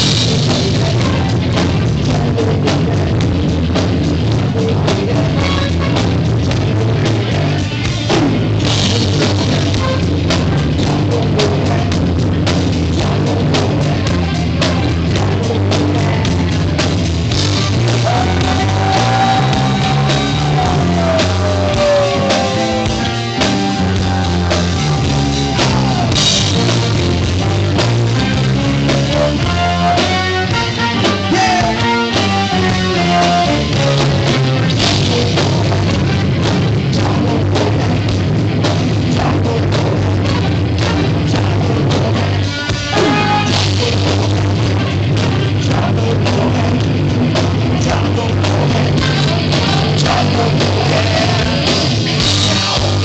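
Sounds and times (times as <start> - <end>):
drum kit beat: 0.0 - 53.0
live rock band playing: 0.0 - 53.0.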